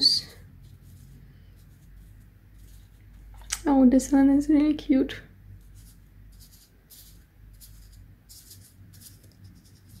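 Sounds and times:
paper stickers rustling: 0:05.7 - 0:10.0.

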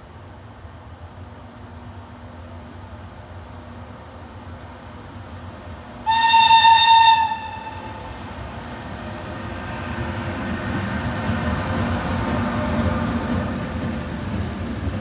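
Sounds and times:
train rumbling: 0:00.0 - 0:15.0
electric locomotive horn: 0:06.0 - 0:08.1.

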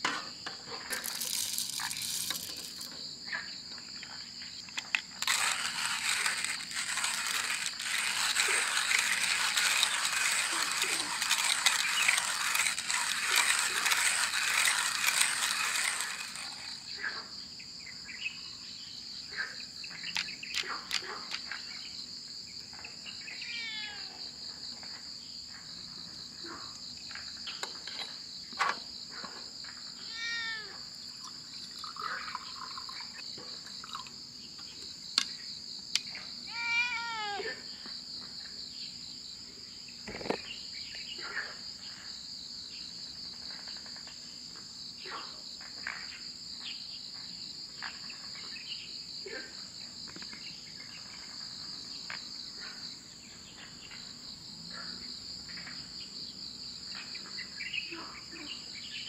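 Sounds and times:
insects droning: 0:00.0 - 0:59.0
hand coffee grinder grinding: 0:00.9 - 0:03.0, 0:04.8 - 0:16.9
metal pot parts clicking: 0:00.9 - 0:03.0, 0:04.7 - 0:16.8.

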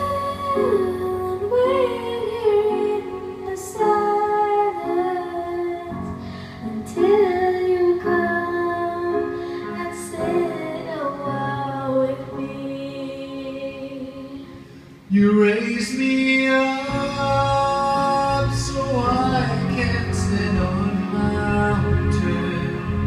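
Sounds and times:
girl singing a slow ballad: 0:00.0 - 0:14.9
karaoke backing track: 0:00.0 - 0:23.0.

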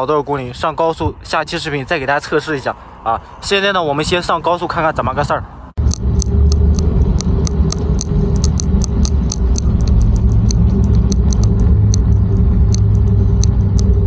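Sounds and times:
wind buffeting microphone: 0:05.0 - 0:14.0
faint steady whine: 0:05.8 - 0:14.0
quick sharp ticks: 0:05.8 - 0:14.0.

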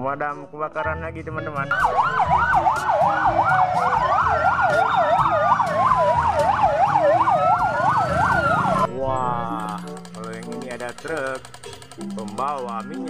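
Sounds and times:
fire engine siren wail: 0:01.7 - 0:09.6
fire engine siren yelp: 0:01.7 - 0:09.6.

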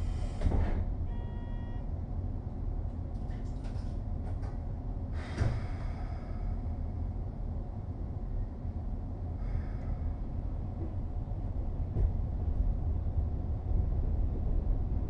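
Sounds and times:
train car rumble: 0:00.0 - 0:15.0
brief chime tone: 0:01.1 - 0:01.9.

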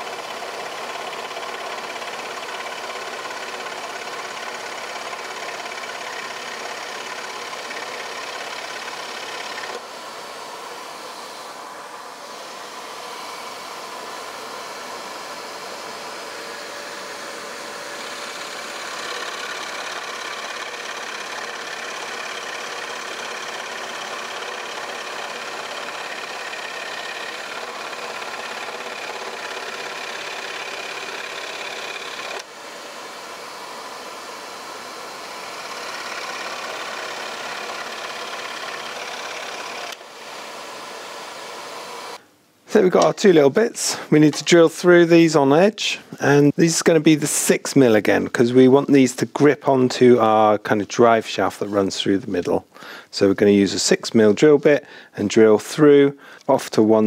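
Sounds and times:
scroll saw cutting plywood: 0:00.0 - 0:42.2.

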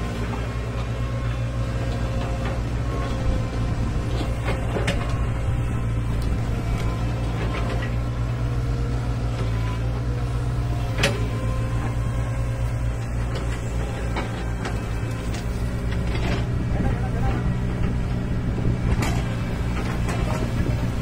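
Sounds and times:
excavator diesel engine running: 0:00.0 - 0:21.0
metal clanks and knocks: 0:18.8 - 0:20.7.

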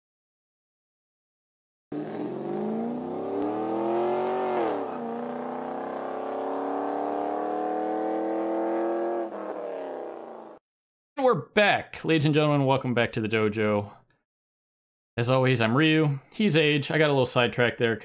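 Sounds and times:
car engine accelerating: 0:01.9 - 0:10.5.

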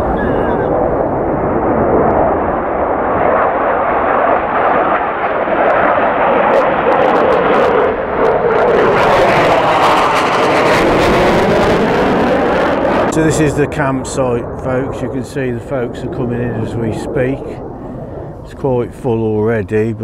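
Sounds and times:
jets flying over: 0:00.0 - 0:20.0.

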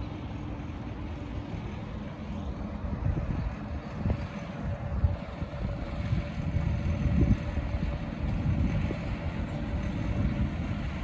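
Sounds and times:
small locomotive diesel engine: 0:00.0 - 0:11.0
wind buffeting the microphone: 0:02.7 - 0:11.0.

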